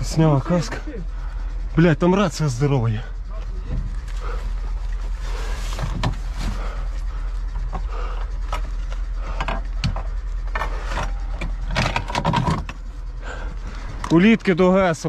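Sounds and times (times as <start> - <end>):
steady low hum: 0.0 - 15.0
gear rummaging clicks and knocks: 3.4 - 14.6.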